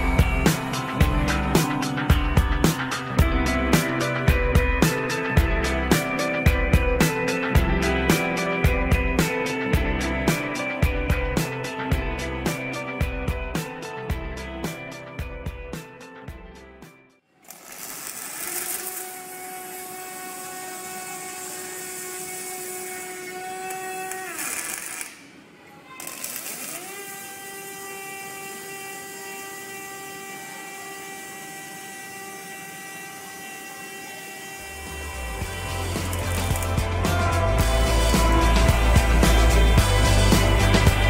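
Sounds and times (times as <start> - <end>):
welding equipment whine: 0.0 - 9.8, 17.4 - 41.0
welding arc hiss: 17.4 - 25.4, 26.0 - 40.8.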